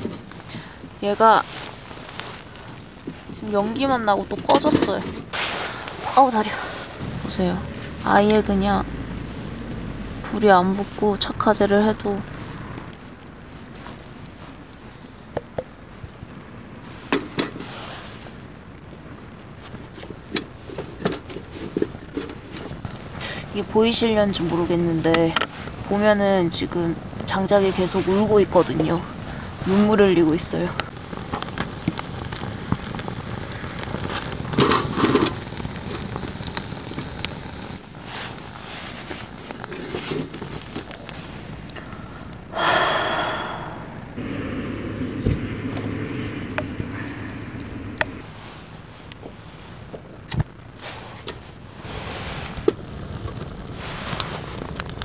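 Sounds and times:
firewood crackling and popping: 0:00.0 - 0:43.4, 0:44.2 - 0:55.0
steady-pitched tone: 0:07.0 - 0:10.2, 0:43.3 - 0:48.2.

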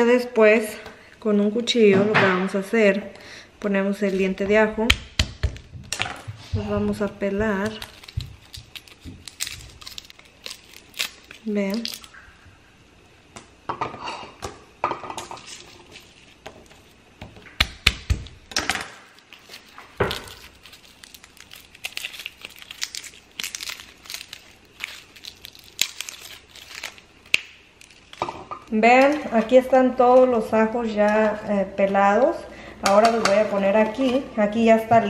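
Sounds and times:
garlic skins crackling: 0:06.6 - 0:12.3, 0:15.3 - 0:32.2.

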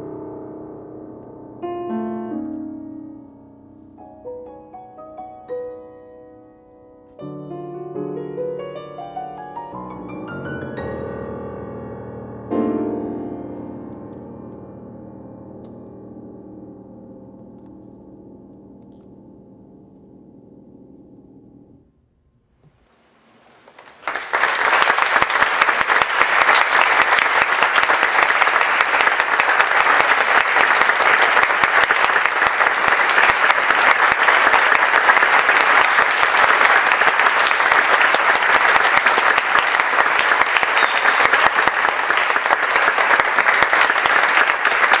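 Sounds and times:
audience applause: 0:23.6 - 0:45.0.

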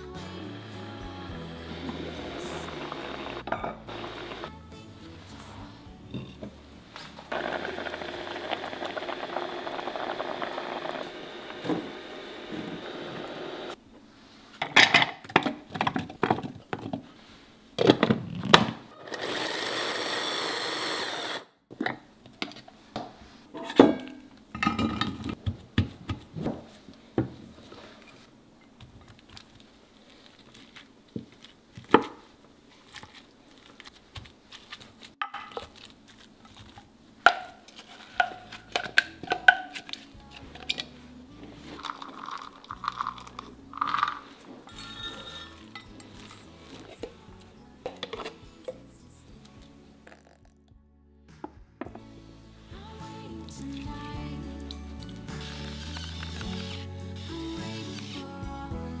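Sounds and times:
electric food chopper running: 0:02.2 - 0:04.5, 0:07.3 - 0:13.8, 0:19.0 - 0:21.5.

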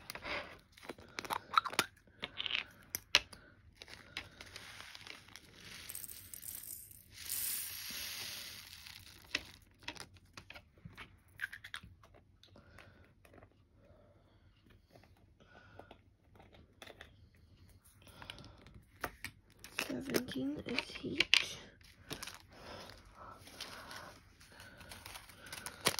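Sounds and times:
plastic packets crinkling: 0:03.7 - 0:10.2, 0:21.8 - 0:25.9.

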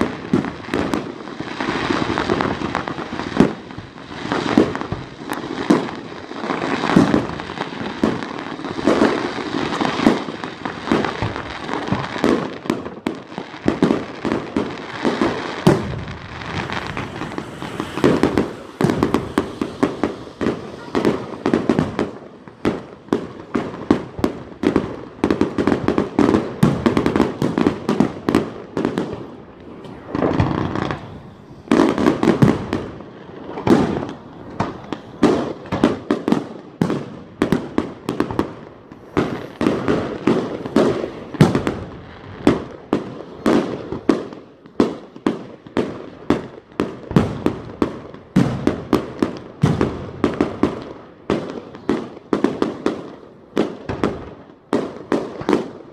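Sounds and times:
fireworks bangs and pops: 0:00.0 - 0:55.9.

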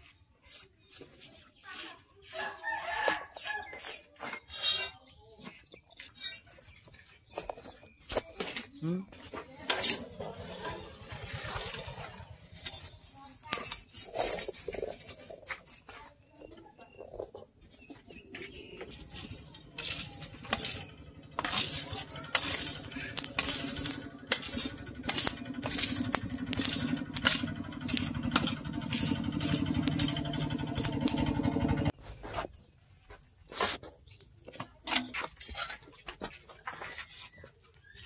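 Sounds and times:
metal poker raking charcoal: 0:00.1 - 0:05.0, 0:09.5 - 0:15.9, 0:18.4 - 0:32.5, 0:33.4 - 0:36.0
forge blower humming: 0:18.8 - 0:32.0.

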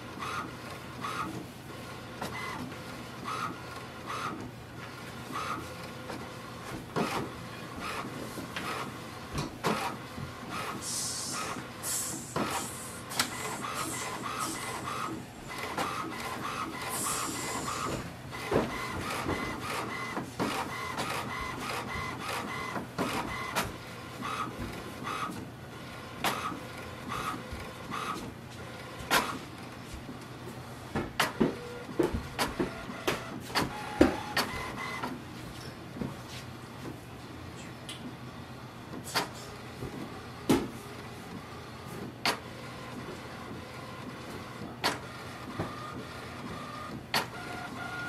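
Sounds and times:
sharp printer clacks: 0:00.0 - 0:30.3, 0:31.0 - 0:35.2, 0:38.9 - 0:48.0
printer carriage whirring: 0:00.0 - 0:48.0
paper feed clicks: 0:05.2 - 0:25.5, 0:26.2 - 0:29.5, 0:31.0 - 0:35.2, 0:38.9 - 0:48.0.

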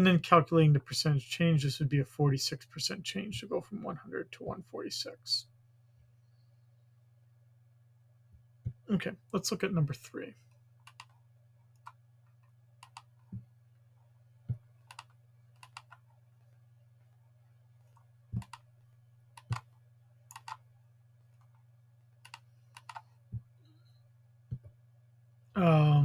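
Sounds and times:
faint low hum: 0:00.0 - 0:26.0
computer mouse and keyboard clicks: 0:10.8 - 0:13.4, 0:14.5 - 0:16.1, 0:17.8 - 0:18.7, 0:19.4 - 0:20.6, 0:22.2 - 0:23.2.

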